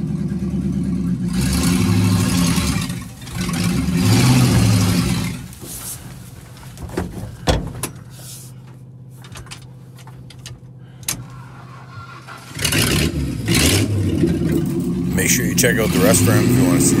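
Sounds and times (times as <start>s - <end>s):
vehicle engine humming: 0.0s - 17.0s
rattles and knocks: 3.2s - 11.5s.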